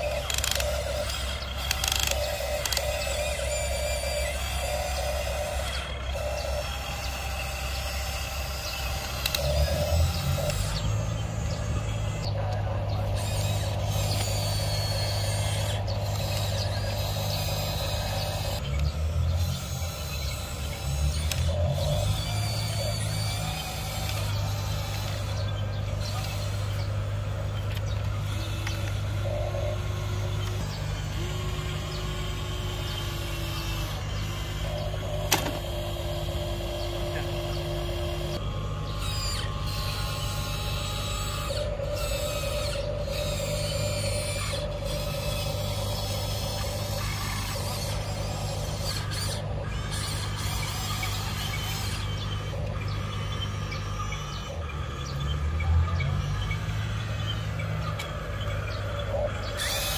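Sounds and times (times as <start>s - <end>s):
toy excavator motors whining: 0.0s - 59.9s
sharp click: 35.3s - 35.6s.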